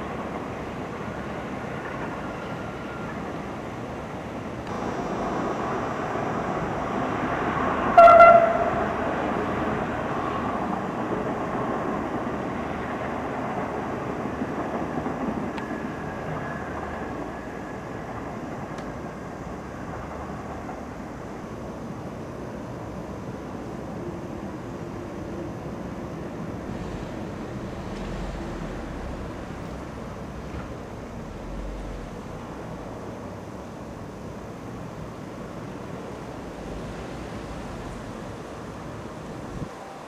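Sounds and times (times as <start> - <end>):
train rolling noise: 0.0 - 40.0
train horn blast: 7.8 - 9.0.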